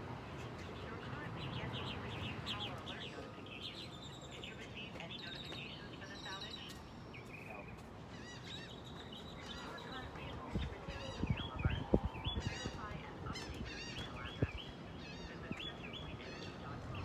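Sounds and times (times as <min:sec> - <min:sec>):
birds chirping and whistling: 0:08.2 - 0:17.0.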